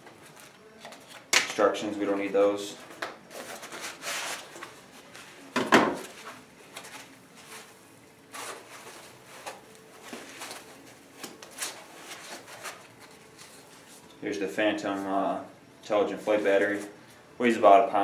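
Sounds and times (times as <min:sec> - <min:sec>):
paper rustling: 0:06.0 - 0:14.1.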